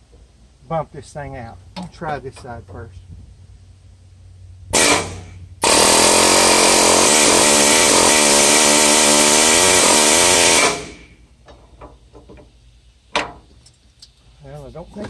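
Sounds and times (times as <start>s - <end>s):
pneumatic air hammer: 4.8s - 11.2s.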